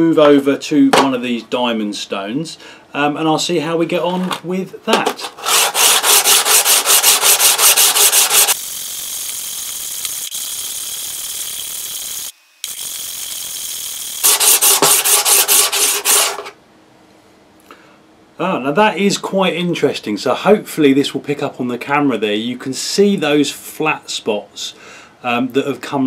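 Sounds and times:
stone rasping on sharpening plate: 5.4s - 8.6s.

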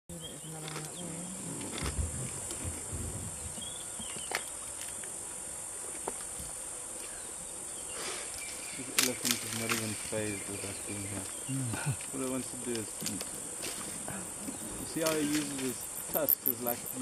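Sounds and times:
high-pitched insect chorus: 0.1s - 17.0s
low thumps: 1.5s - 3.8s
leafy branches rustling: 7.9s - 16.7s
branches snapping: 8.9s - 10.0s, 12.7s - 14.0s.

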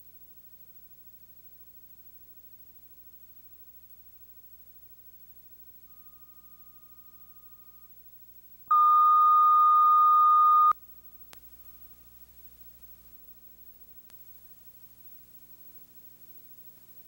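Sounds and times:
steady reference tone beep: 8.7s - 10.8s.

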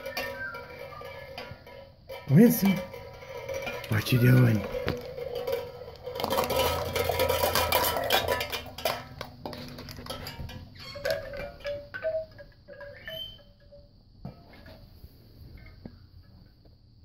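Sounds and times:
ringing tones: 0.0s - 8.8s, 10.0s - 14.0s
plastic cups and tin cans clattering: 0.0s - 14.9s.

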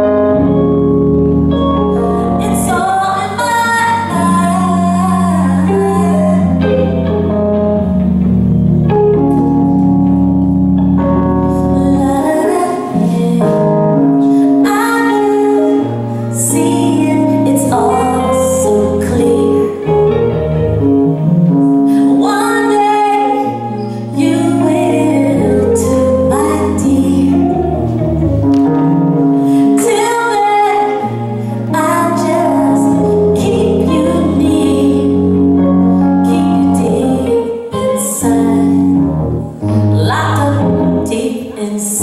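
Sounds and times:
stage piano chords: 0.0s - 42.0s
woman singing: 2.2s - 7.1s, 11.5s - 20.3s, 21.9s - 27.8s, 29.5s - 42.0s.

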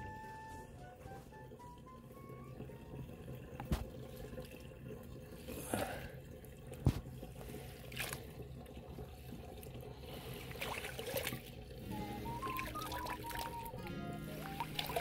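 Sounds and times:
water sloshing and splashing: 0.8s - 15.0s.

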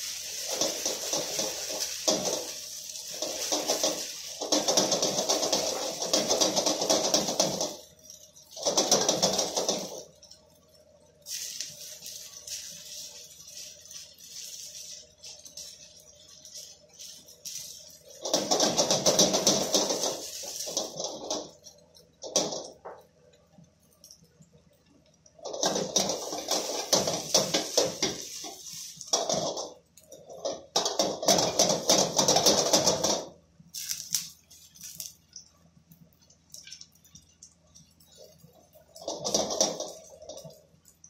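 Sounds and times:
food sizzling in hot oil: 0.0s - 8.6s, 10.0s - 21.1s, 33.7s - 35.4s.

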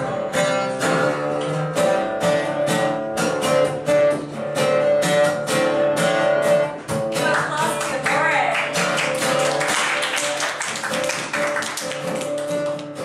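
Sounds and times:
acoustic guitar strumming: 0.0s - 13.0s
hands clapping along: 1.0s - 1.9s, 6.9s - 13.0s.

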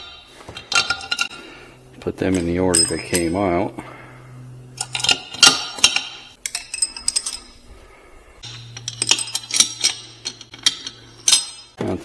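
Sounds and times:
metal parts clinking: 0.0s - 1.4s, 2.2s - 3.5s, 4.8s - 7.7s, 8.4s - 11.8s.

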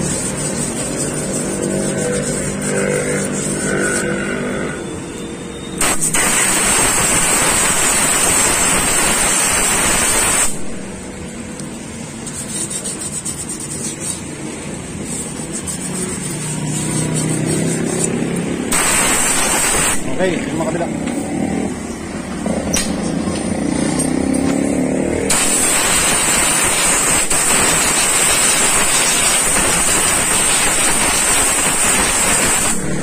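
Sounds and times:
engine running: 0.0s - 4.9s
compressed air hissing: 5.8s - 10.8s, 15.0s - 20.2s, 25.3s - 33.0s.

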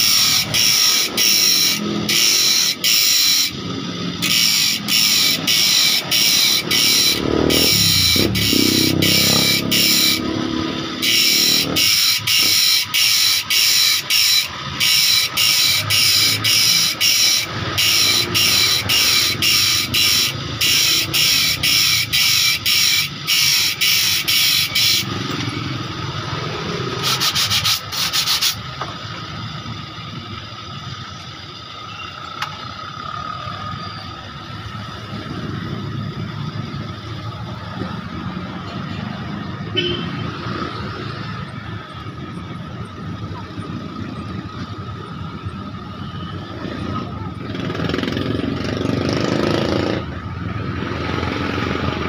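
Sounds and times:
electric motor whine: 0.0s - 27.0s
grinding wheel on saw blade: 0.0s - 39.7s.

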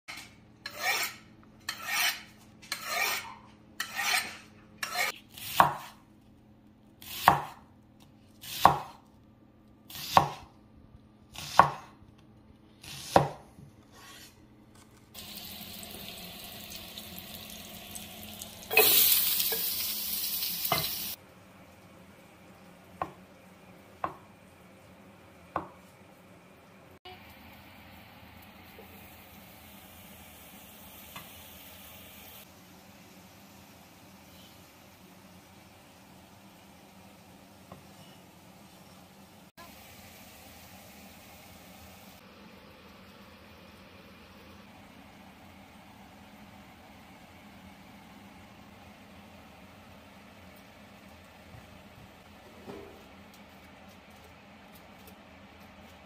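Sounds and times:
cleaver scraping on sharpener: 0.7s - 5.2s
knife chopping on wooden board: 4.9s - 6.0s, 7.1s - 7.6s, 8.5s - 9.0s, 10.0s - 10.5s, 11.4s - 12.0s, 12.9s - 14.2s.

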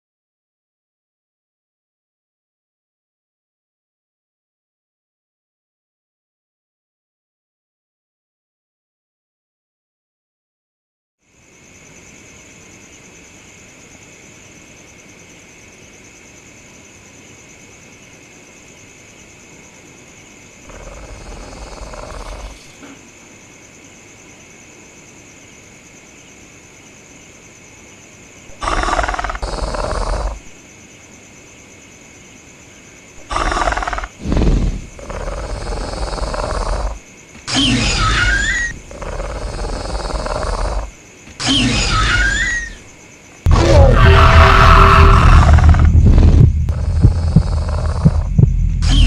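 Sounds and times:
steady hiss: 11.3s - 37.5s, 45.3s - 49.0s
dinosaur calls: 28.5s - 30.4s, 33.2s - 42.8s, 43.5s - 49.0s
deep rumble: 43.5s - 49.0s.

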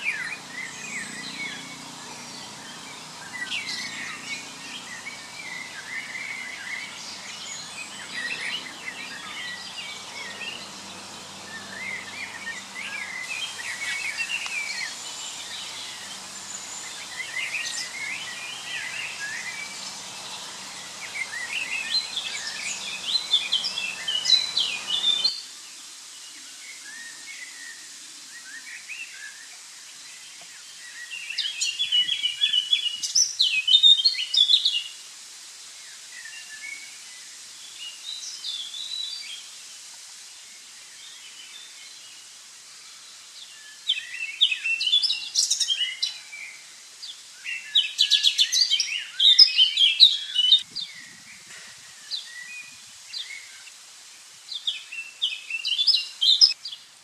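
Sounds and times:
background hiss: 0.0s - 57.0s
songbirds chirping: 0.0s - 57.0s.

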